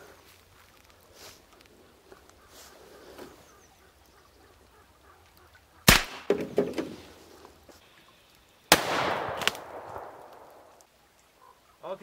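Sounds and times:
sharp crack: 0:05.8 - 0:07.0, 0:08.7 - 0:10.9
pistol shots: 0:05.9 - 0:06.3, 0:08.7 - 0:10.8.

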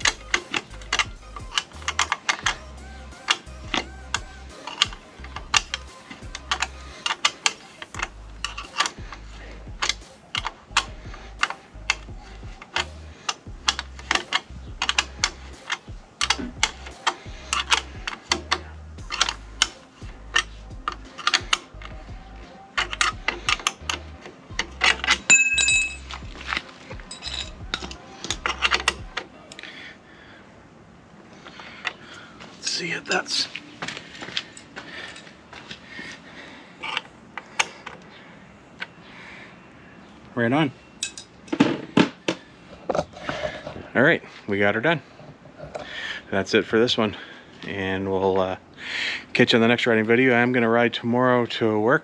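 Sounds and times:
tool and screws clinking on metal: 0:00.0 - 0:09.2, 0:09.8 - 0:22.0, 0:22.6 - 0:29.7, 0:41.0 - 0:43.6
short metallic ring: 0:25.2 - 0:26.0.

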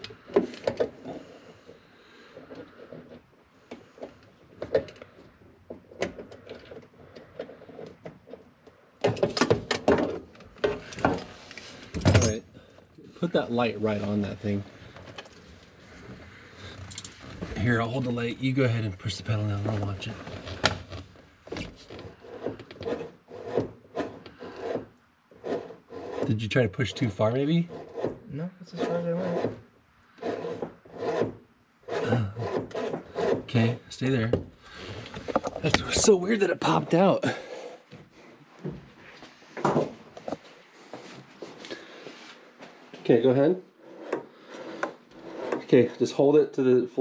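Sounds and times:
pedal creaking and scraping: 0:13.3 - 0:46.3
clattering and rustling: 0:34.3 - 0:36.2.

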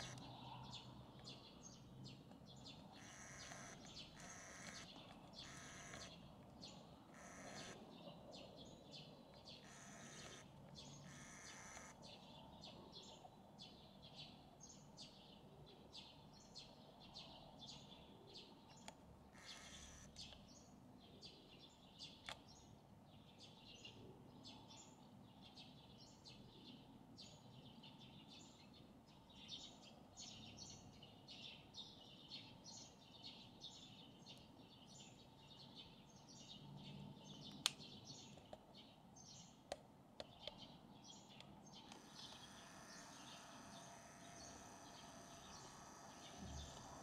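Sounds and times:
high bird chirps: 0:00.0 - 0:00.8, 0:02.7 - 0:07.8, 0:09.6 - 0:12.0.

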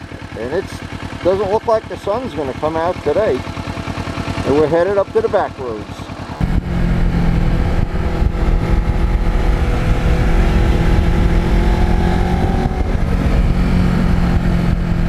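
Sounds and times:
motorcycle engine cruising: 0:00.0 - 0:15.0
wind rushing: 0:06.4 - 0:14.9.

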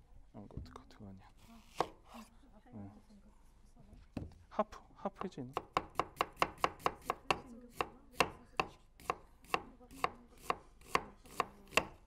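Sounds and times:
knife chopping on wooden board: 0:01.7 - 0:02.3, 0:05.2 - 0:12.0.

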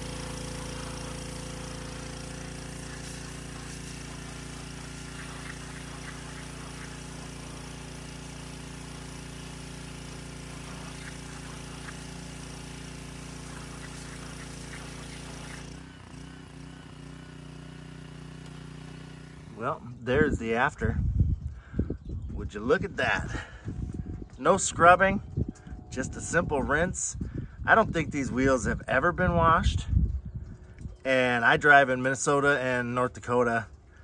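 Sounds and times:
pressure washer jet hissing: 0:00.0 - 0:19.8
pressure washer motor hum: 0:00.0 - 0:27.6.

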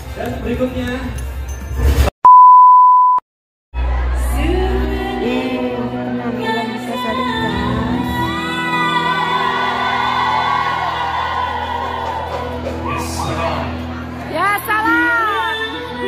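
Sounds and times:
loud electronic beep: 0:02.3 - 0:03.2
live band and singer: 0:04.0 - 0:10.6, 0:11.8 - 0:16.0
crowd shouting and singing along: 0:08.4 - 0:16.0.

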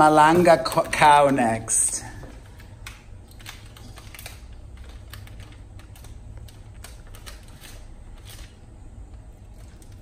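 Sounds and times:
low steady hum: 0:00.0 - 0:10.0
plastic wrapper crinkling: 0:01.6 - 0:08.8.

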